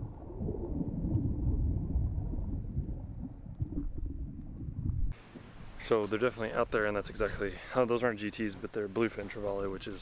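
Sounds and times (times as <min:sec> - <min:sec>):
muffled underwater rumble: 0:00.0 - 0:05.8.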